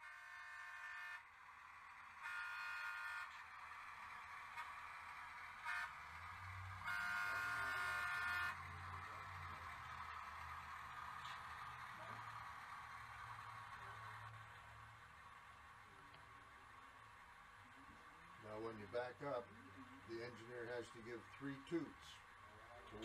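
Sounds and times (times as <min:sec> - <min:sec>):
model train horn toots: 0:00.0 - 0:01.4, 0:02.1 - 0:03.6, 0:04.5 - 0:08.8
low engine rumble: 0:00.7 - 0:23.0.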